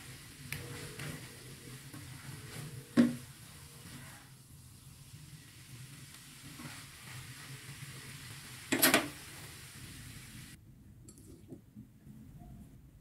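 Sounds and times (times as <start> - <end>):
food sizzling in a wok: 0.0 - 10.6
spatula stirring: 6.4 - 8.4.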